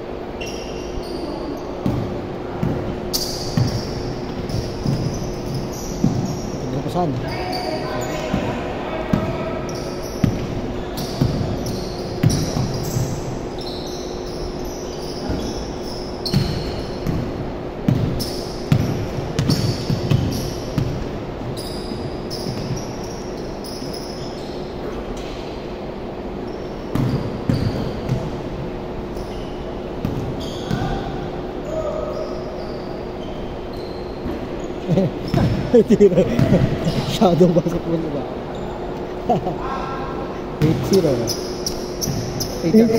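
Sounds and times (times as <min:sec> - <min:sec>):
sneakers squeaking on court: 0:00.4 - 0:37.4, 0:38.4 - 0:39.0, 0:40.5 - 0:42.9
basketball bouncing on hardwood floor: 0:01.8 - 0:06.4, 0:17.9 - 0:21.0.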